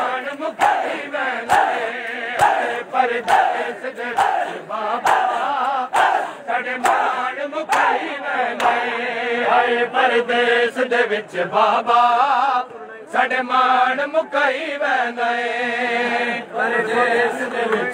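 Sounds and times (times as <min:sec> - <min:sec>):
rhythmic chest-beating slaps: 0:00.0 - 0:09.0
crowd of men chanting a lament: 0:00.0 - 0:17.9.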